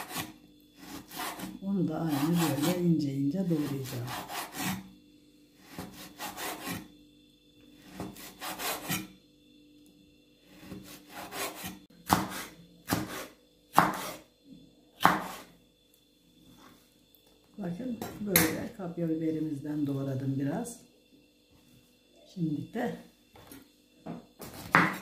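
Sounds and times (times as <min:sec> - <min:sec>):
knife sawing food: 0:00.0 - 0:02.9, 0:03.5 - 0:04.9, 0:05.6 - 0:06.9, 0:07.8 - 0:09.1, 0:10.5 - 0:14.2
knife cuts striking board: 0:10.7 - 0:14.2, 0:15.0 - 0:15.4, 0:24.4 - 0:25.0.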